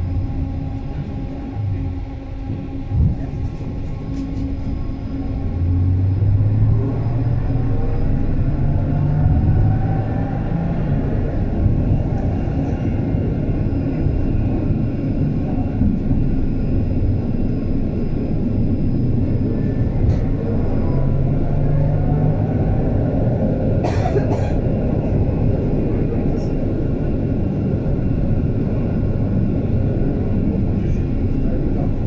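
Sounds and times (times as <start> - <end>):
faint rising whine: 0.0 - 12.0
tram wheels rumbling on rails: 0.0 - 32.0.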